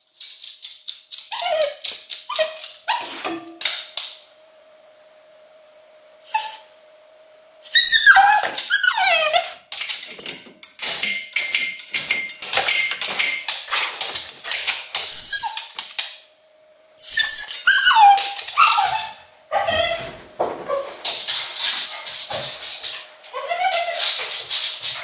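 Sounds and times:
dog scratching metal gate: 0.1 - 3.8, 7.7 - 16.2, 17.0 - 20.0, 20.7 - 25.0
dog whining and crying: 1.2 - 3.5, 6.2 - 6.7, 7.7 - 9.6, 13.7 - 15.8, 17.0 - 21.0, 23.2 - 24.4.

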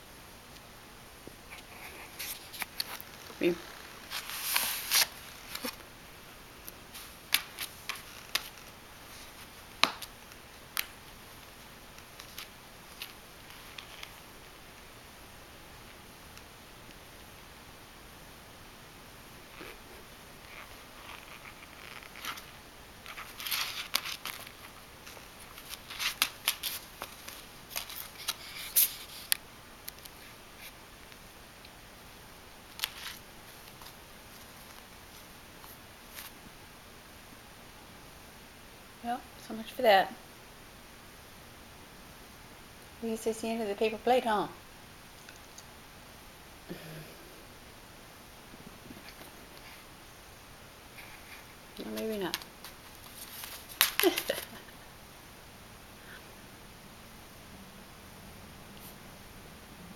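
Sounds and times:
paper plate crackling and clicking: 20.5 - 29.3, 51.0 - 54.6.

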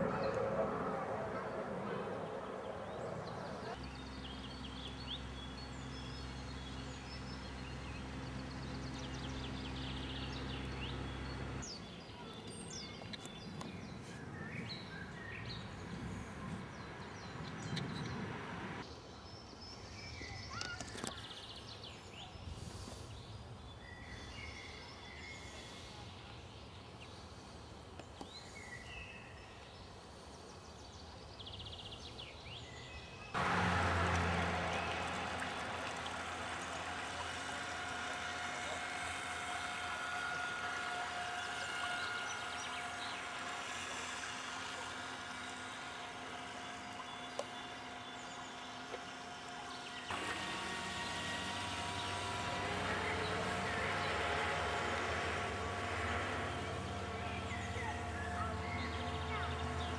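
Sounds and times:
songbirds chirping: 0.0 - 59.9
low steady hum: 33.4 - 59.9.

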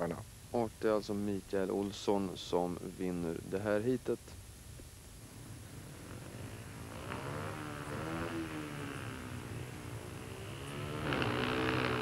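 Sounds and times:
motorcycle engine at low revs: 5.5 - 12.0.

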